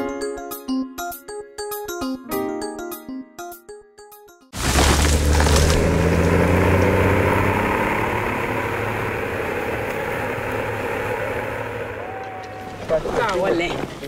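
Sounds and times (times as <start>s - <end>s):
heavy diesel engine running: 5.0s - 12.8s.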